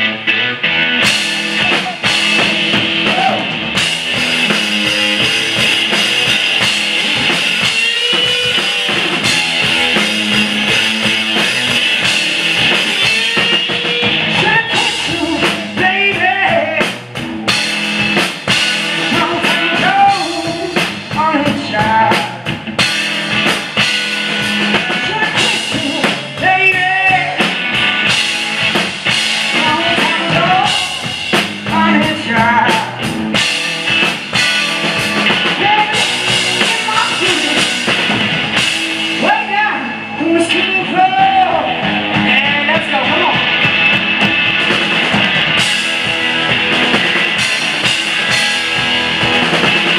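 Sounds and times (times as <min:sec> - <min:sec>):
distorted electric guitar: 0:00.0 - 0:49.9
pounding drum kit: 0:00.0 - 0:49.9
man singing: 0:13.0 - 0:17.0, 0:19.0 - 0:22.4, 0:25.0 - 0:27.5, 0:29.6 - 0:33.0, 0:35.5 - 0:37.9, 0:39.2 - 0:43.5.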